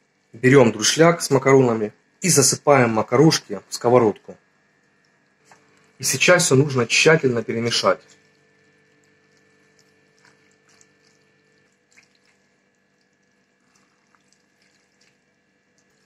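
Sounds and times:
faint steady hum: 0.0s - 16.0s.

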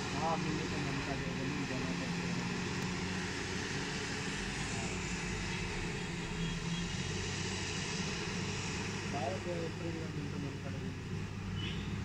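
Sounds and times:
wheel loader diesel engine: 0.0s - 12.0s.

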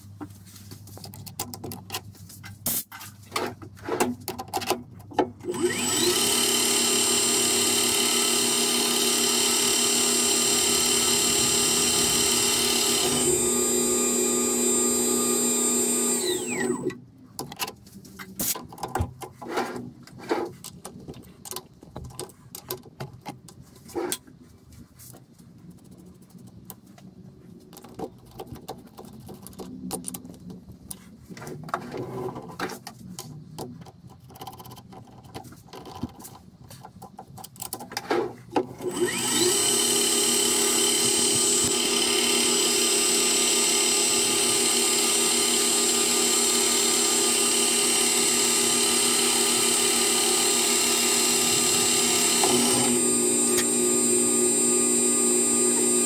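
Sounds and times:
lathe motor running: 5.5s - 16.9s, 38.9s - 56.0s.

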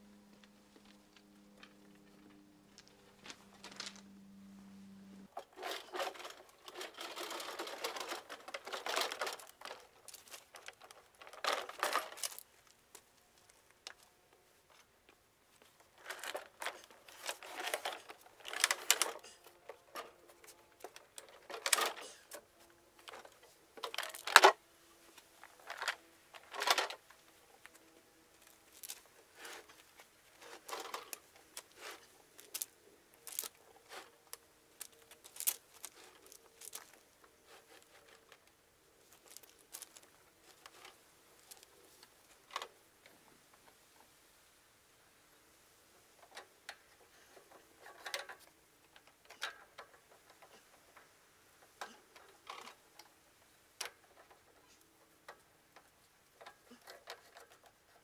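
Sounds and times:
tools and parts rattling: 5.3s - 12.7s, 15.6s - 24.6s, 25.3s - 42.8s, 46.2s - 53.2s, 53.8s - 58.0s.

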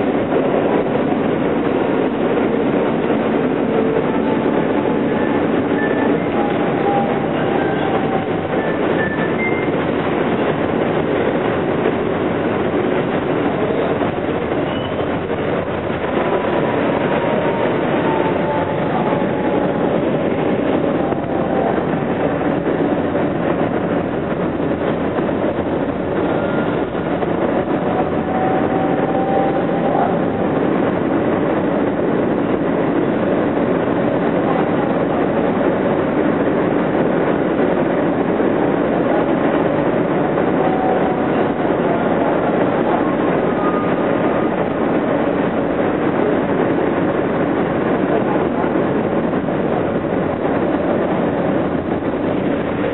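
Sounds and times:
subway train wheels rumbling: 0.0s - 52.9s
wheels squealing: 5.1s - 9.7s, 14.6s - 15.1s.

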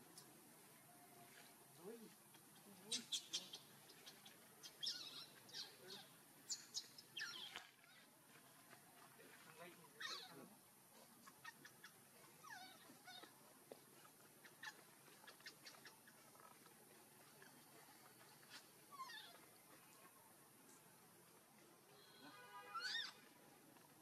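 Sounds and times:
baby monkey squeaks: 4.6s - 7.6s, 10.0s - 10.4s, 11.2s - 13.3s, 22.7s - 23.2s.

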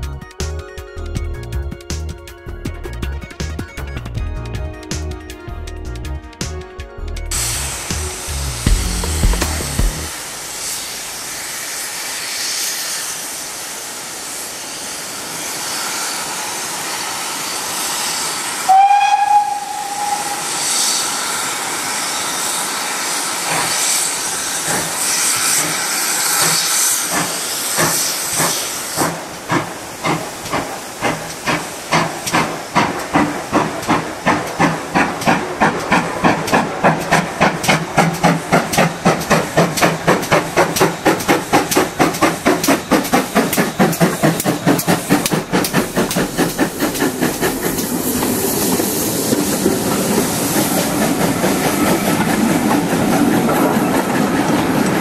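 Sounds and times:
locomotive exhaust beats: 7.3s - 10.1s, 30.1s - 55.0s
steam locomotive hissing: 7.3s - 55.0s
steam whistle: 17.8s - 22.6s.

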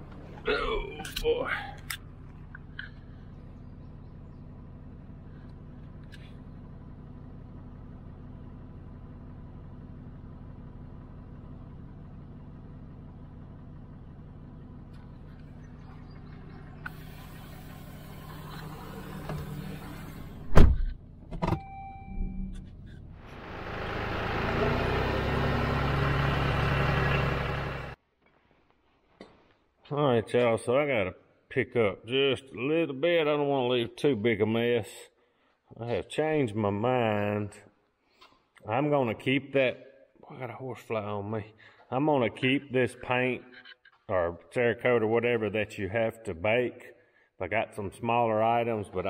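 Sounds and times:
tractor engine running loudly: 0.0s - 20.6s, 22.8s - 28.0s
truck engine idling: 0.0s - 28.0s
car door opening: 16.9s - 23.0s
knocks and thump: 20.4s - 21.6s.

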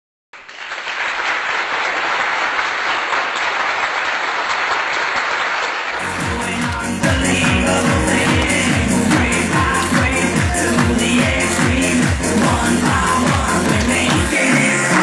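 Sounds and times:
audience applauding: 0.4s - 15.0s
dance music with heavy bass: 6.0s - 15.0s.

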